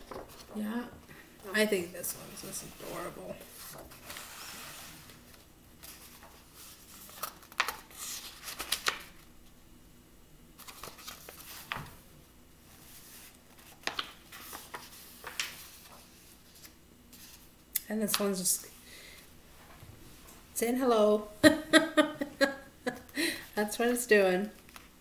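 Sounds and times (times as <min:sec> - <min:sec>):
paper pages turning: 0:00.0 - 0:00.6, 0:02.1 - 0:09.2, 0:10.6 - 0:12.0, 0:12.7 - 0:17.5, 0:24.6 - 0:24.9.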